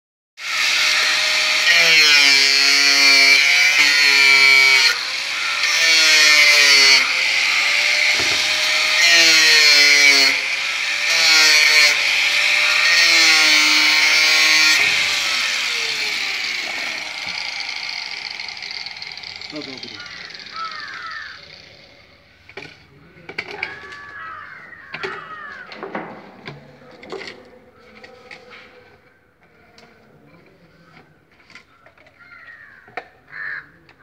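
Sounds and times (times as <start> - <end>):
angle grinder cutting pipe: 0.4 - 22.8.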